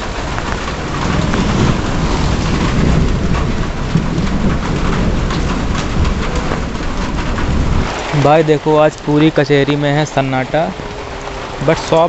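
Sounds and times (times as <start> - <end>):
low rumble: 0.0 - 8.2
heavy rain splashing into puddles: 0.0 - 12.0.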